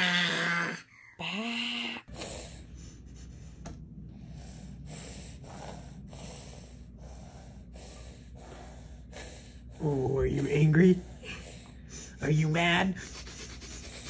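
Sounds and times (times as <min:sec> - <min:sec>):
baby snorting breaths: 0:04.3 - 0:09.8.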